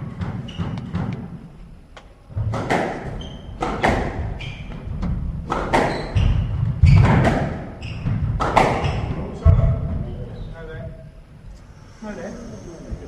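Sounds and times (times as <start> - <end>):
squash ball cracking off rackets: 2.3 - 9.2
shoes squeaking on wooden floor: 3.0 - 3.6, 4.2 - 5.0, 5.8 - 9.1.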